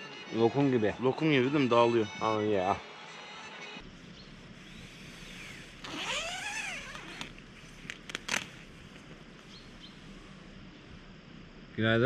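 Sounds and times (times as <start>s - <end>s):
zipper being unzipped: 5.8s - 7.3s.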